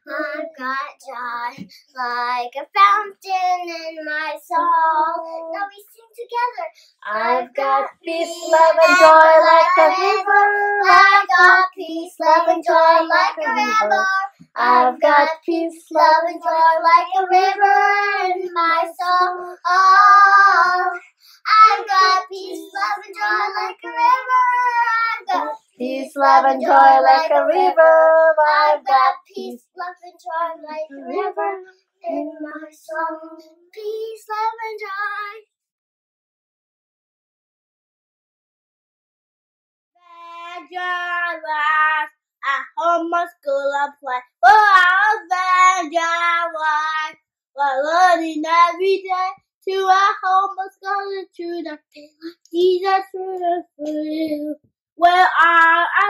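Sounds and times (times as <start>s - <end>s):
girl singing unaccompanied: 0.0s - 35.4s, 40.0s - 56.0s.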